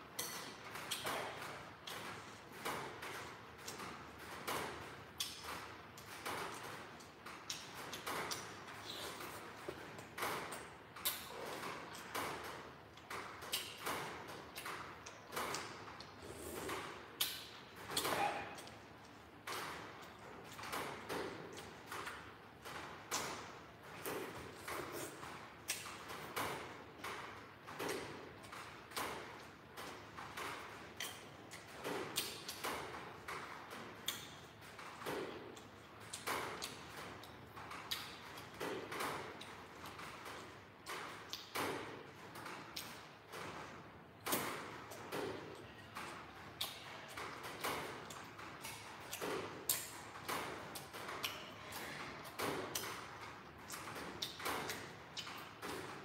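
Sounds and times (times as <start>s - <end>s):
person chewing wetly: 6.0s - 21.9s, 34.0s - 34.5s, 46.5s - 55.8s
man slurping noodle soup: 16.2s - 16.9s.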